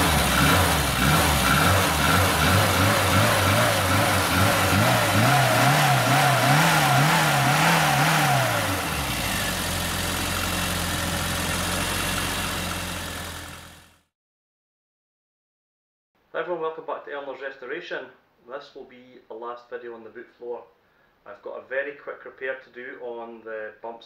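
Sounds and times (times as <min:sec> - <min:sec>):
car engine idling: 0:00.0 - 0:14.0
car engine revving: 0:00.0 - 0:14.0.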